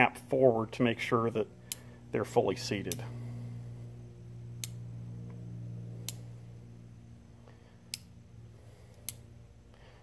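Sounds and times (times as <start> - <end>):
steady low hum: 0.0 - 10.0
sharp clicks of percussion caps: 1.6 - 2.0, 2.8 - 3.1, 4.6 - 5.4, 8.9 - 9.3.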